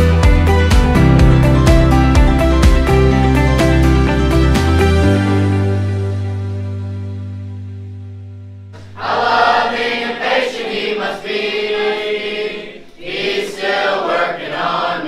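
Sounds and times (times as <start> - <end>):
background music: 0.0 - 10.3
group of boys singing together: 8.8 - 15.0.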